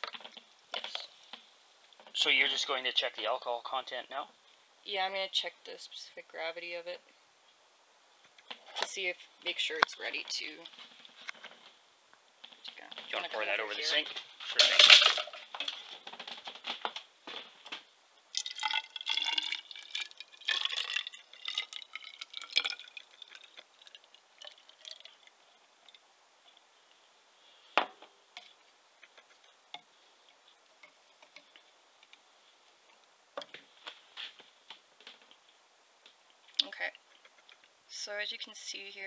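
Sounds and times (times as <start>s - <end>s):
wine pouring into plastic jar: 18.3s - 26.0s.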